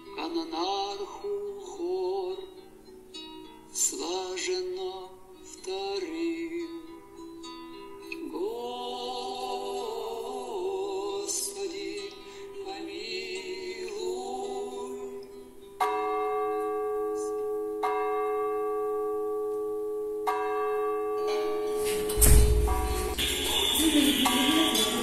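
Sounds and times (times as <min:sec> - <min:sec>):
slow singing voices: 0:00.0 - 0:02.7, 0:03.7 - 0:07.3, 0:08.0 - 0:16.0, 0:23.0 - 0:25.0
bell ringing: 0:15.8 - 0:25.0.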